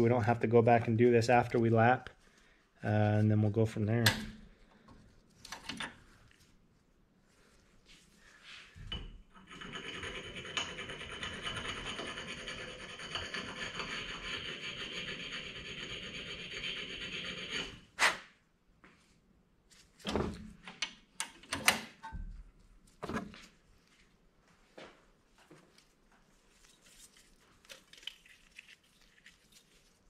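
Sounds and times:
grinding metal valve stem: 9.4s - 17.8s.

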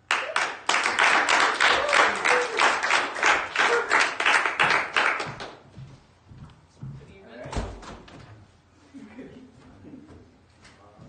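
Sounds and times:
students clapping in rhythm: 0.0s - 5.6s.

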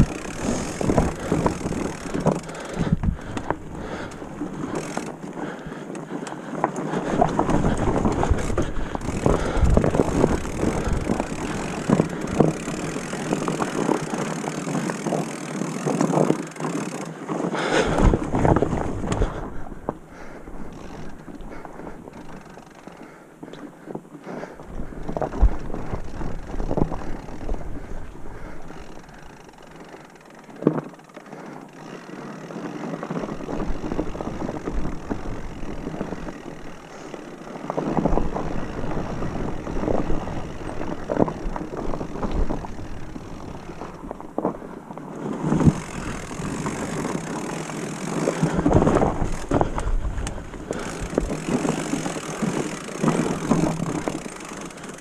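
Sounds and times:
wind buffeting microphone: 0.0s - 17.0s, 17.6s - 22.4s, 33.2s - 55.0s
bike tyre rumble and rattle: 0.0s - 55.0s
wheels knocking on roots: 0.0s - 55.0s.

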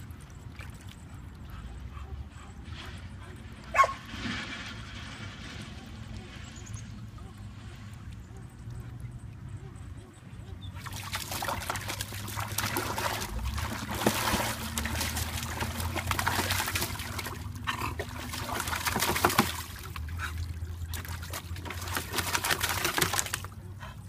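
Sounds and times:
dog splashing in water: 10.8s - 23.6s.

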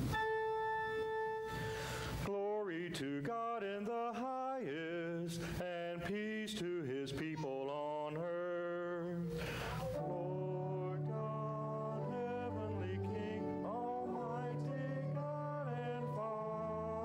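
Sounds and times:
held chord: 0.0s - 2.1s, 9.9s - 17.0s.

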